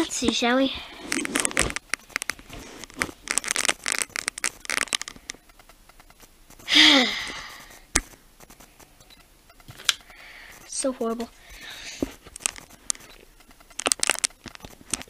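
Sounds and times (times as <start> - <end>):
rustling and handling noises: 0.0 - 15.0
sharp click: 3.7 - 11.3.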